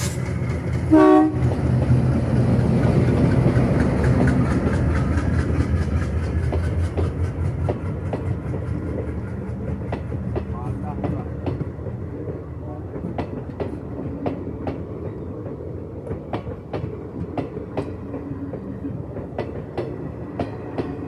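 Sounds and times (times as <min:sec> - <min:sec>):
clickety-clack of train wheels: 0:00.0 - 0:21.0
diesel locomotive engine running: 0:00.0 - 0:21.0
train horn blast: 0:00.9 - 0:01.6.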